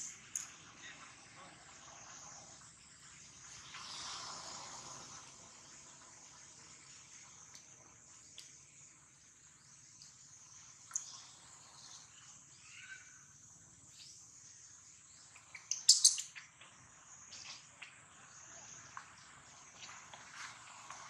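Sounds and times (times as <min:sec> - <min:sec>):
high insect drone: 0:00.0 - 0:15.3
birds chirping: 0:10.6 - 0:19.0.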